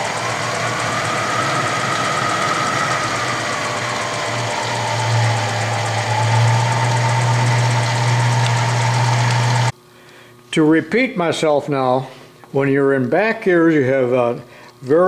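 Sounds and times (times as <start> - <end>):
machine whining tone: 0.0 - 9.7
milling machine motor hum: 0.0 - 9.7.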